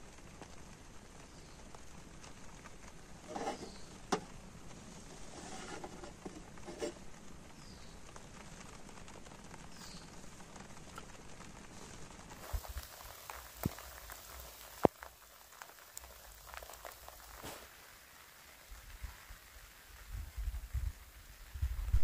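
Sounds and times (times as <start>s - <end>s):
rain pattering on tent: 0.0s - 22.0s
steady hiss: 0.0s - 22.0s.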